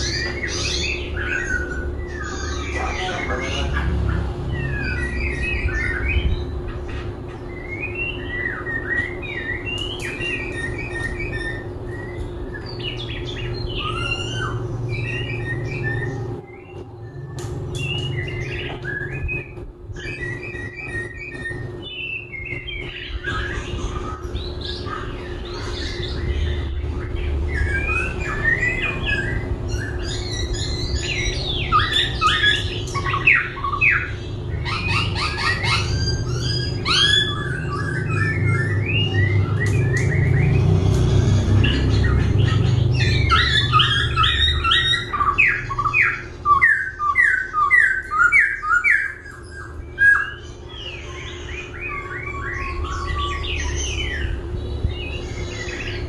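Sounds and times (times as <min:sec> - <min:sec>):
steady low hum: 0:00.0 - 0:56.0
bird singing whistled phrases: 0:07.6 - 0:26.7.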